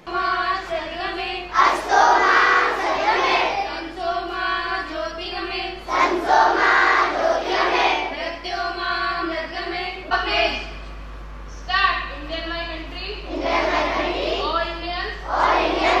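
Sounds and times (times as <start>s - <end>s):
children singing in unison: 1.5s - 3.8s, 5.9s - 8.1s, 13.3s - 14.4s, 15.3s - 16.0s.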